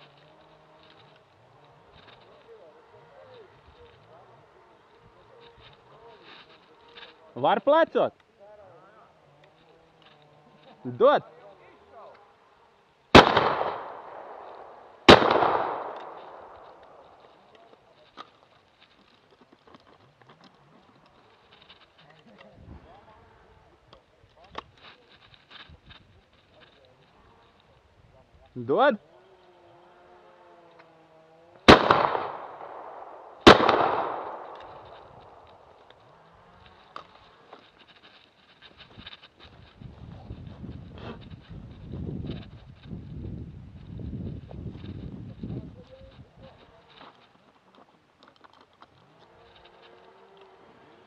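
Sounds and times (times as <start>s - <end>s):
shotgun shot with echo: 13.1s - 17.0s, 31.7s - 35.0s.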